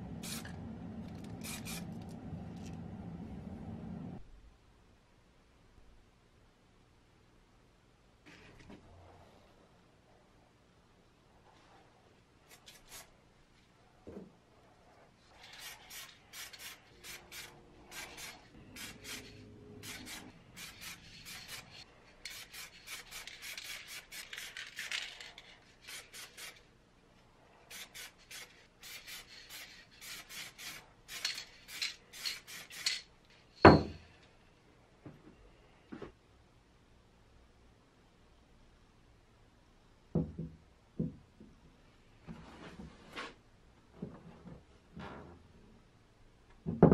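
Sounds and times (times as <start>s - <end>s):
spray paint can hissing: 0.2s - 2.2s, 15.4s - 26.6s, 27.7s - 33.0s.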